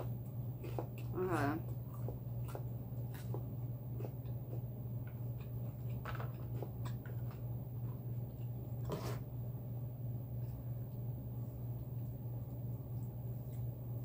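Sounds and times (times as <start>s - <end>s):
chewing food: 0.0s - 9.3s.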